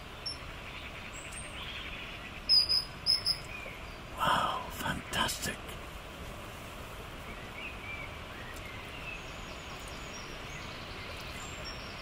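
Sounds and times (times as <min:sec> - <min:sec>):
faint bird chirps: 0:00.0 - 0:05.6
outdoor background noise: 0:00.0 - 0:12.0.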